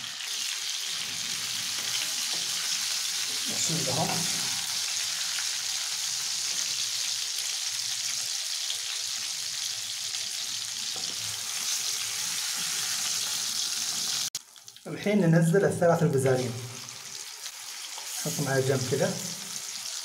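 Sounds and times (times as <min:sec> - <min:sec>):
chicken sizzling in frying pan: 0:00.0 - 0:14.9, 0:16.1 - 0:20.0.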